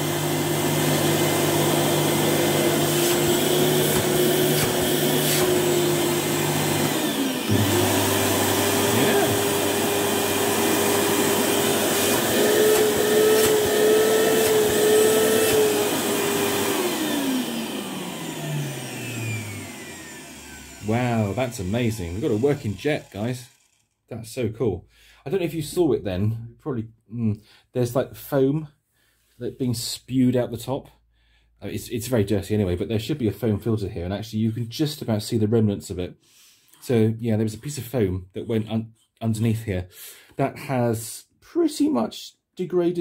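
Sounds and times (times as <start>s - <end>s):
vacuum cleaner motor whine: 0.0s - 23.9s.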